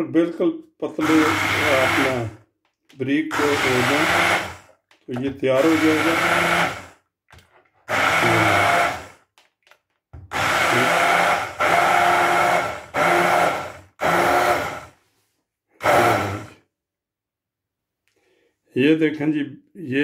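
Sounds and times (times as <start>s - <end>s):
electric hand blender whining: 1.0s - 2.4s, 3.3s - 7.0s, 7.9s - 9.2s, 10.3s - 15.0s, 15.8s - 16.6s.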